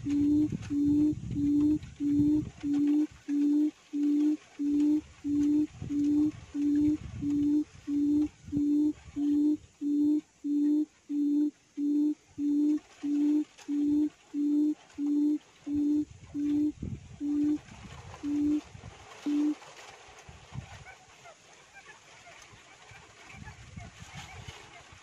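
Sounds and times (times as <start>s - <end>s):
quail call from loudspeaker: 0.0s - 17.6s, 18.2s - 18.6s, 19.2s - 19.6s.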